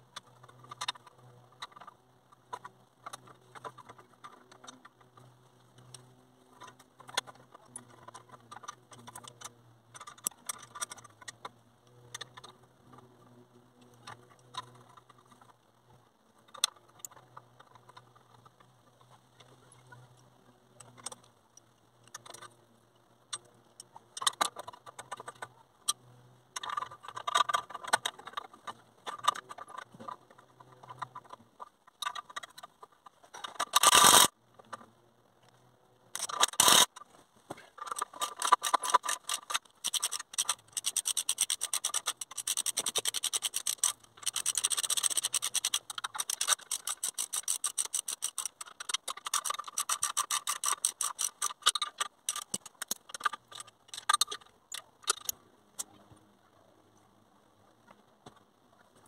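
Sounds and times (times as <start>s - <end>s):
socket ratchet clicking: 37.9s - 54.4s.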